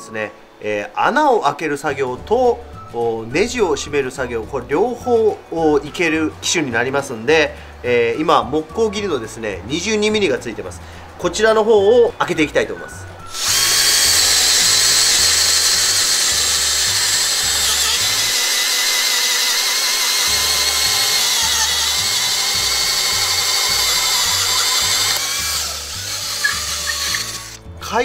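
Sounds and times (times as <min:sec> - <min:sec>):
cordless drill boring into wood: 0:13.3 - 0:27.6.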